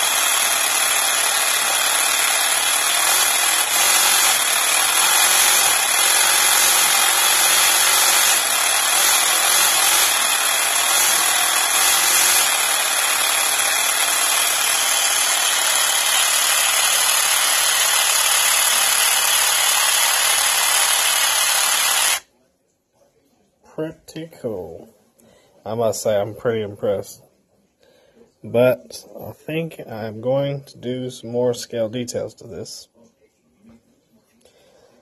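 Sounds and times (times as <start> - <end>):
model engine whirring and rattling: 0.0 - 22.2.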